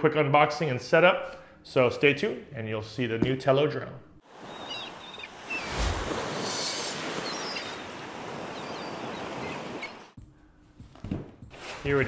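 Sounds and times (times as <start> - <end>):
ocean waves breaking: 4.2 - 10.2.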